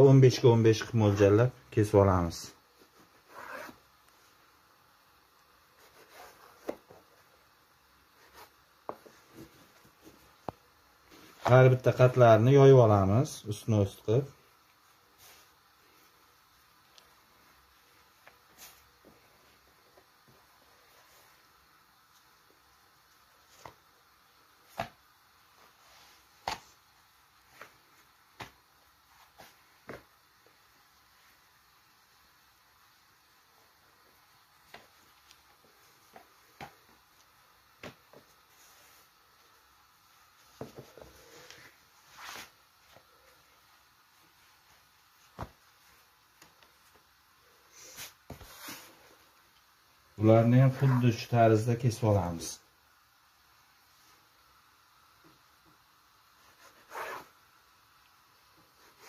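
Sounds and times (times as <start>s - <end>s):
hand patting dough on wood: 24.7s - 25.1s, 37.8s - 38.4s.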